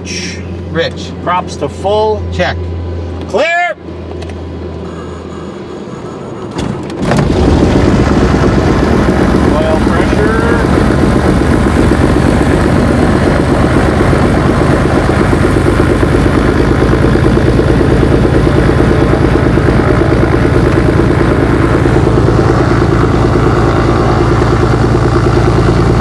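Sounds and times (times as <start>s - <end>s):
piston engine idling: 6.8s - 26.0s.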